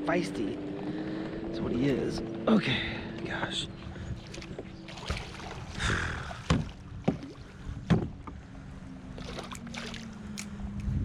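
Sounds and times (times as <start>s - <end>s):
landing net splashing: 4.2s - 7.5s, 9.1s - 10.4s
net knocking against boat: 6.4s - 8.2s.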